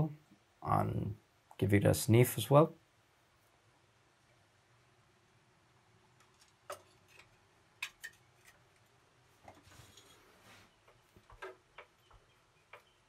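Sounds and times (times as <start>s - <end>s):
soft rustle: 8.3s - 11.5s.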